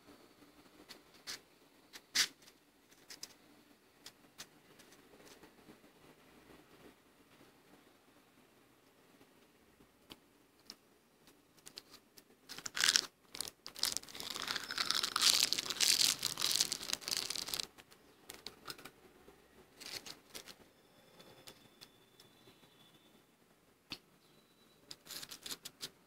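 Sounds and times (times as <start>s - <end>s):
crackles and clicks: 8.8s - 19.0s
frost crunching being chewed: 12.5s - 17.7s.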